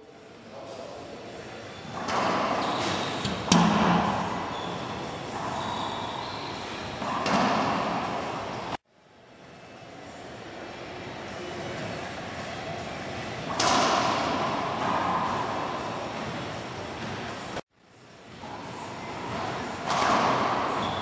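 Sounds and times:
racquetball hits echoing: 2.0s - 6.2s, 7.0s - 8.3s, 13.5s - 15.7s, 19.8s - 21.0s.

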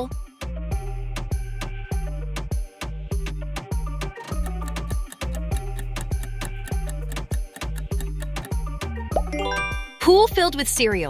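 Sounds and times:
background music with bass notes: 0.0s - 11.0s
clock-like ticking: 4.3s - 9.3s.

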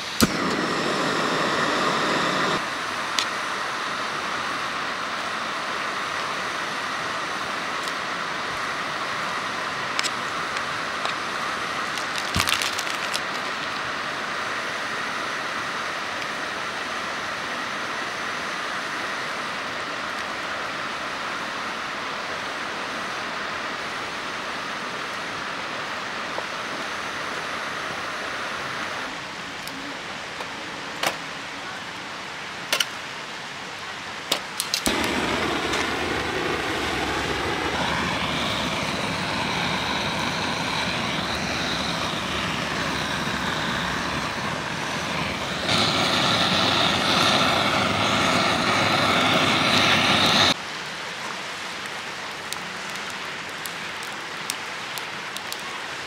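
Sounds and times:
gas stove hissing: 0.0s - 16.6s, 34.6s - 50.6s
gas torch roaring: 0.0s - 16.8s, 34.6s - 50.6s.

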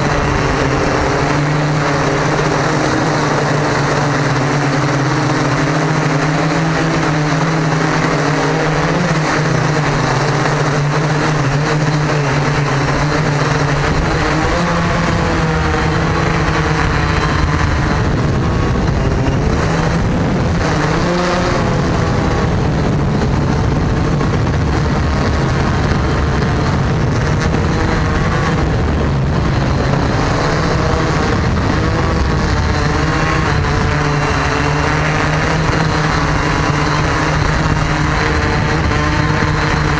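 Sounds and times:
drone propellers buzzing: 0.0s - 39.9s
low rumble: 12.2s - 39.9s.

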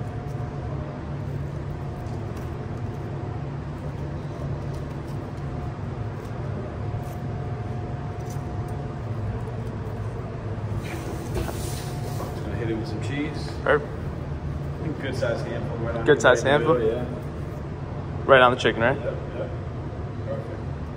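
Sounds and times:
kitchen equipment humming: 0.0s - 20.9s.

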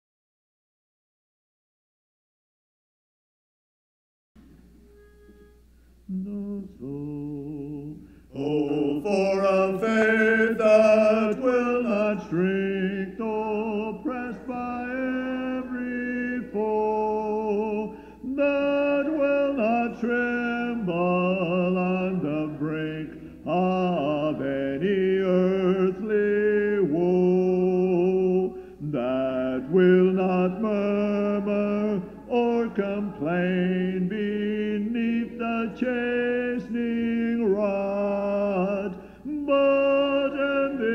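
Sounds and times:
choir singing a hymn a cappella: 6.1s - 40.9s.

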